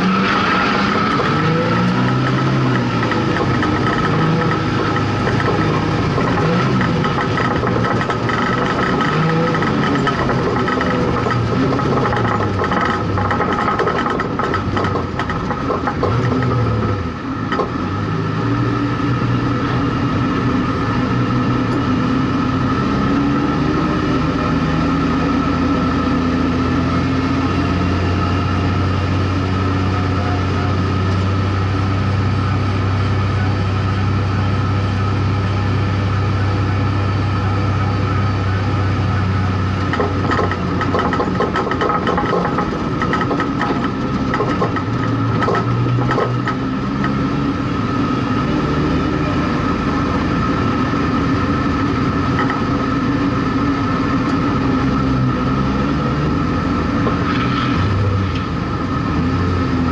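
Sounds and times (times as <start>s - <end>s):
race car engine droning: 0.0s - 59.9s
rattles and clatters: 1.1s - 17.8s, 39.7s - 47.2s.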